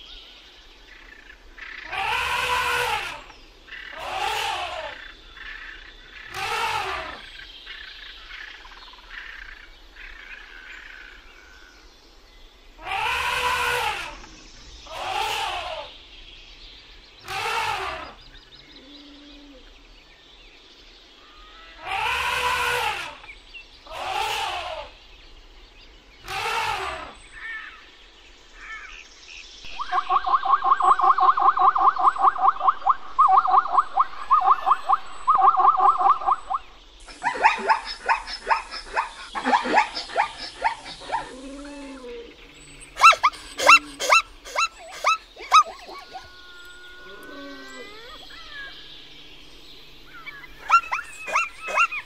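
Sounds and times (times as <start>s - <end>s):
mixed animal calls: 1.6s - 7.5s, 12.8s - 16.1s, 17.2s - 19.8s, 21.1s - 25.1s, 26.2s - 29.0s, 29.7s - 52.0s
elephants calling: 1.8s - 3.3s, 3.9s - 5.1s, 6.2s - 7.3s, 12.8s - 16.0s, 17.2s - 18.2s, 21.2s - 23.3s, 23.9s - 25.0s, 26.2s - 27.8s, 29.8s - 52.0s
zebras barking yelps: 1.8s - 3.3s, 4.0s - 5.0s, 6.2s - 7.3s, 12.8s - 14.3s, 14.9s - 15.9s, 17.3s - 18.2s, 21.3s - 23.3s, 23.9s - 25.0s, 26.2s - 27.7s, 32.1s - 49.5s, 50.1s - 52.0s.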